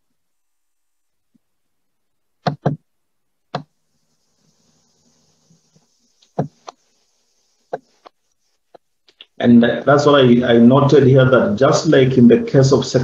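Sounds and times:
sharp computer clicks: 2.4s - 2.8s.

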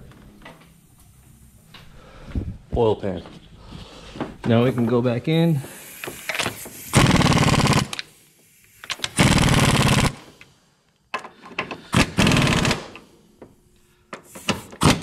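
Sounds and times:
impact wrench hammering: 5.7s - 8.0s, 12.0s - 13.0s.

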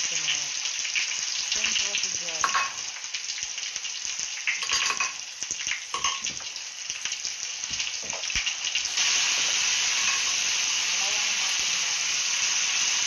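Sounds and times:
eggplant sizzling in hot oil: 0.0s - 13.0s
metal spoon clinking on glass dish: 4.6s - 5.2s, 6.0s - 6.3s.

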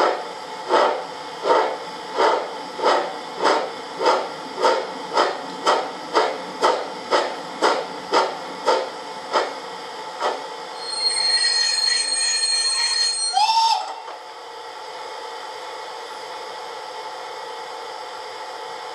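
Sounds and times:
model steam locomotive chuffs: 0.0s - 18.9s
high steady squeal: 10.7s - 14.1s.

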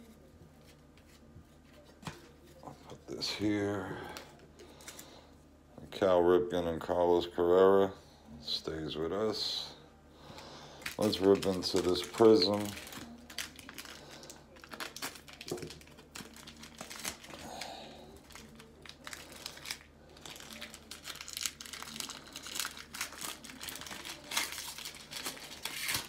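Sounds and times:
plastic wrapper tearing and crinkling: 10.8s - 26.0s.

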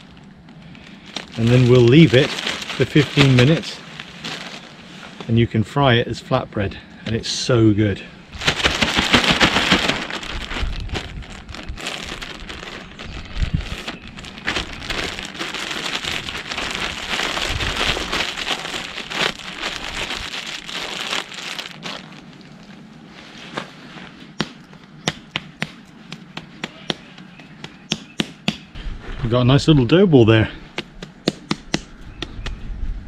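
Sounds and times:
plastic bag crinkling: 0.0s - 5.3s, 8.3s - 22.9s.

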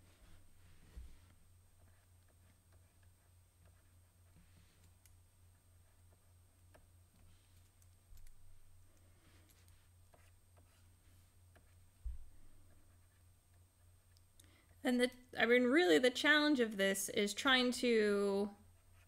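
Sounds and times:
soft low thump: 12.0s - 12.4s.

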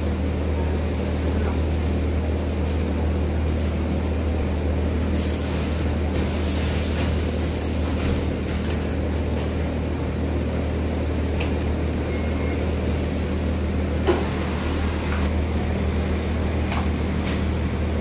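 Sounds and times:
low machine hum: 7.2s - 18.0s.

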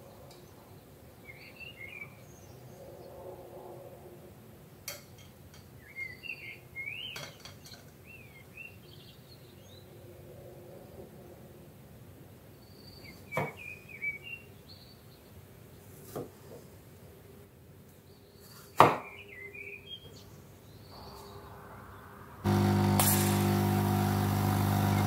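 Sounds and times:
coffee machine humming: 22.5s - 25.0s.

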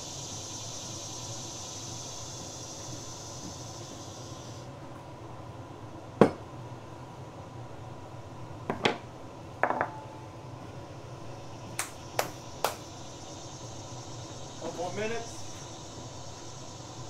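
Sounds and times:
steady low hum: 0.0s - 17.0s
sharp ticks: 11.7s - 12.9s.

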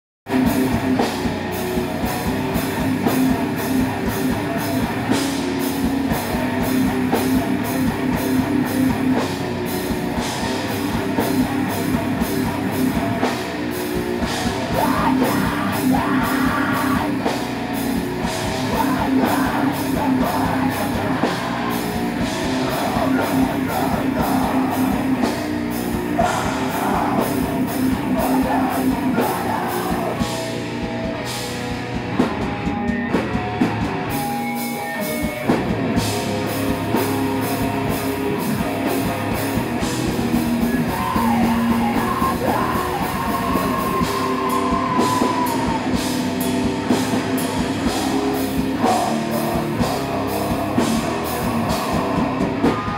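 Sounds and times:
bass guitar: 0.2s - 52.9s
distorted electric guitars: 0.2s - 52.9s
fast drums: 0.3s - 52.9s
shouted vocals: 14.6s - 17.3s, 18.6s - 25.4s, 26.1s - 30.4s, 40.6s - 52.9s.

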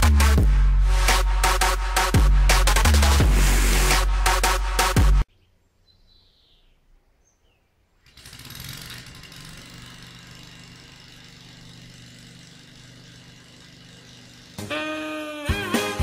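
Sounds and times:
faint bird chirps: 5.3s - 7.8s
lawn mower engine: 8.0s - 16.0s.

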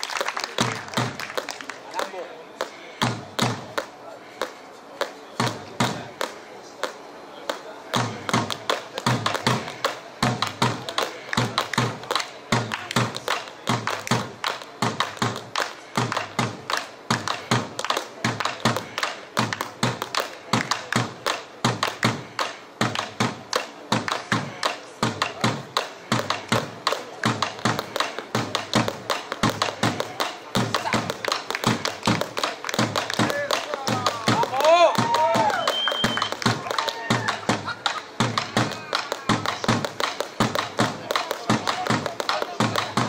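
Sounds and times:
large drum beaten with sticks: 8.0s - 43.0s.

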